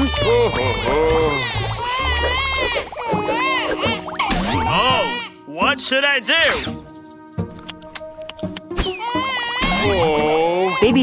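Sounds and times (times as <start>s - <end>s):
cartoon baby crying: 0.0s - 5.3s, 8.9s - 11.0s
light background music: 0.0s - 11.0s.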